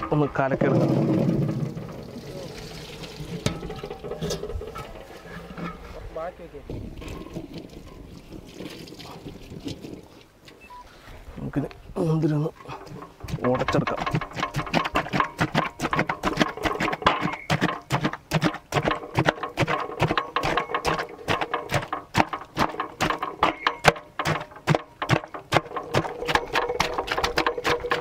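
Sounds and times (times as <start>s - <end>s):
wooden pestles pounding grapes in metal pot: 0.0s - 6.0s, 12.3s - 28.0s.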